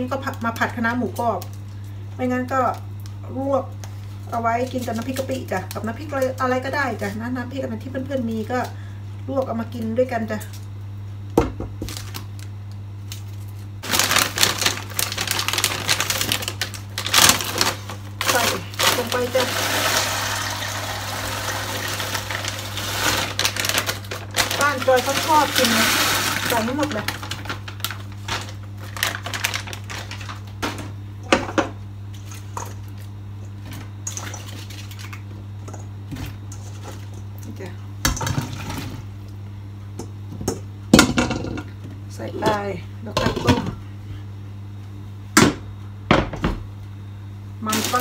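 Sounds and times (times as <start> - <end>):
steady low hum: 0.0 - 48.0
plastic bag crinkling: 11.9 - 30.7, 47.7 - 48.0.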